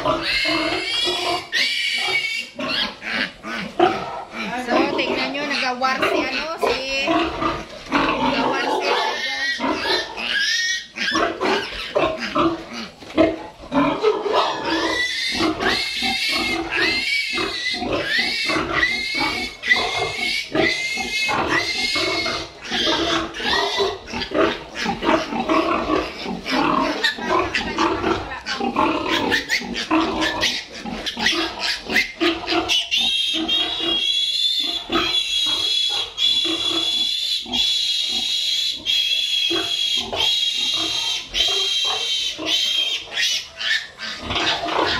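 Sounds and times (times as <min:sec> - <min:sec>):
piglets squealing: 0:00.0 - 0:44.9.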